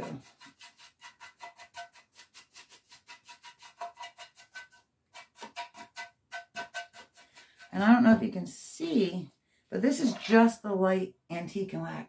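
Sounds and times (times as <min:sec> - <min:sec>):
stiff paintbrush scratchy strokes: 0:00.0 - 0:05.8.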